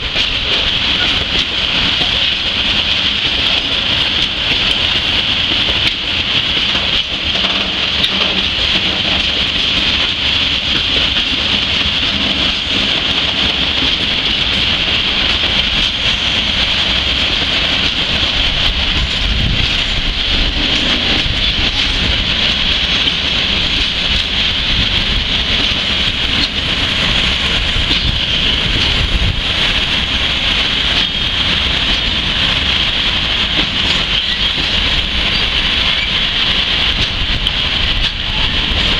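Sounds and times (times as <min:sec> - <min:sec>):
train wheels on rail: 0:00.0 - 0:38.9.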